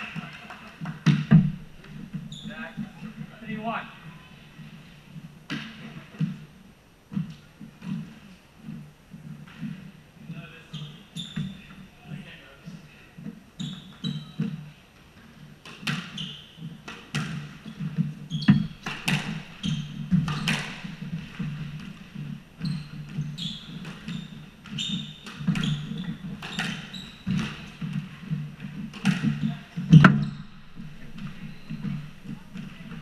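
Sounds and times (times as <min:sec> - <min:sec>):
court shoes squeaking: 0:00.1 - 0:06.5, 0:07.1 - 0:12.2, 0:13.2 - 0:33.0
footsteps on wooden floor: 0:01.1 - 0:05.4, 0:17.7 - 0:33.0
squash ball hitting rackets and walls: 0:05.5 - 0:06.4, 0:15.2 - 0:33.0.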